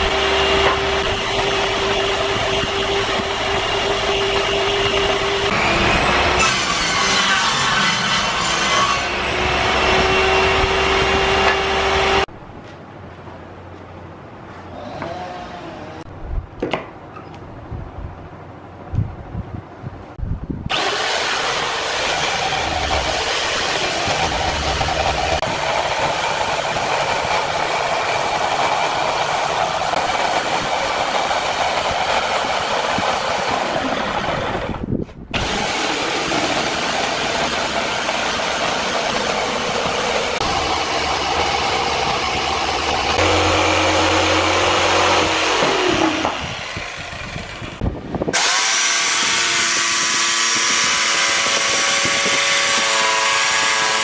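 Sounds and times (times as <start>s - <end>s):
electric jigsaw cutting plywood: 0.0s - 12.3s, 20.7s - 34.8s, 35.4s - 54.0s.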